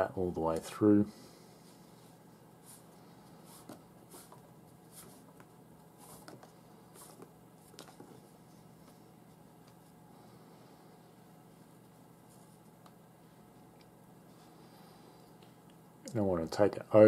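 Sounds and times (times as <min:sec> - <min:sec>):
low steady hum: 0:00.0 - 0:17.0
cord rustling and swishing: 0:01.7 - 0:10.0.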